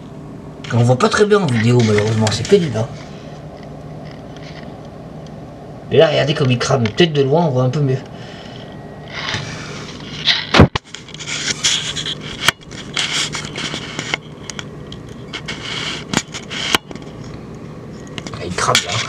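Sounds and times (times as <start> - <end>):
faint low hum: 0.0 - 19.0
camera handling scraping and rubbing: 1.4 - 2.7, 3.6 - 4.8, 8.5 - 17.4.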